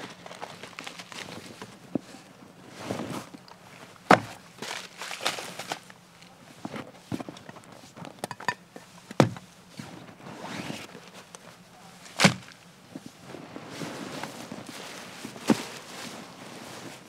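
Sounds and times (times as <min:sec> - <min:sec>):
fabric bag rustling and scuffing: 0:13.1 - 0:17.0.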